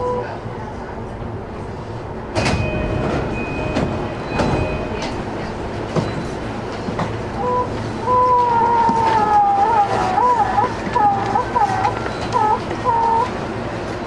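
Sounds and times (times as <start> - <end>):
train cabin noise: 0.0 - 14.0
train doors opening: 1.7 - 9.5.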